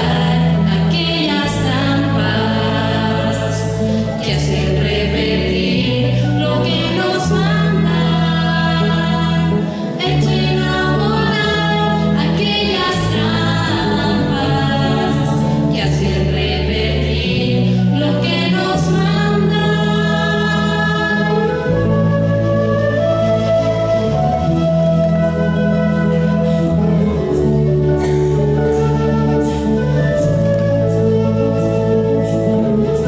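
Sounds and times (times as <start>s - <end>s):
people singing together: 0.0s - 21.6s
electric bass and guitars: 0.0s - 33.0s.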